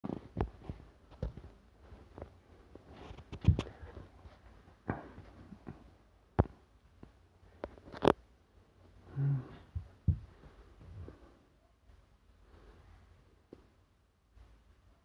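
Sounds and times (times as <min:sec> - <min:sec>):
faint rustle: 0:00.1 - 0:06.0
knocks and rubs on microphone: 0:00.1 - 0:08.2, 0:09.7 - 0:11.2.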